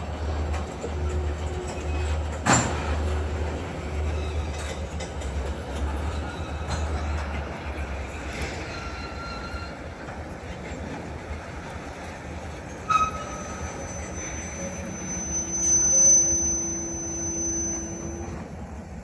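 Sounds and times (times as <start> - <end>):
freight train rumbling: 0.0 - 19.0
wheel squeal: 1.1 - 2.9, 5.9 - 9.9, 12.8 - 18.5.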